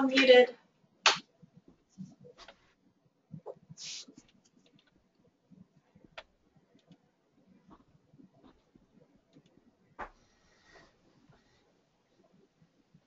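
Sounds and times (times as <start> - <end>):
short hiss: 3.8 - 4.2.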